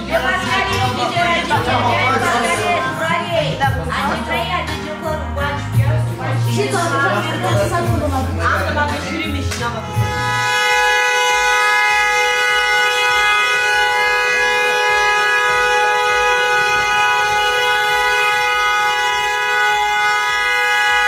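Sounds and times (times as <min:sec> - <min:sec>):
car horn two-tone blast: 0:09.0 - 0:21.0.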